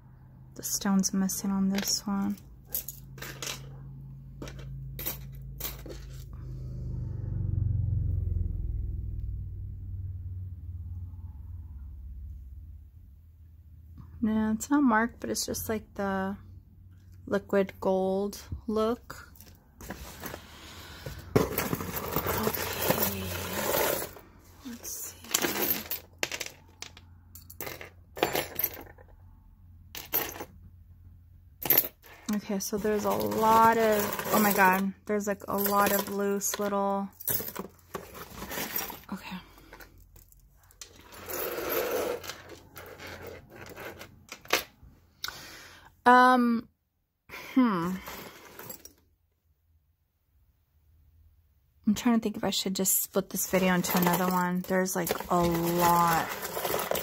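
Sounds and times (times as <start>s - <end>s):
metal jewelry clinking: 1.6s - 6.3s, 21.3s - 29.0s, 31.6s - 34.8s, 35.4s - 44.7s, 53.3s - 57.0s.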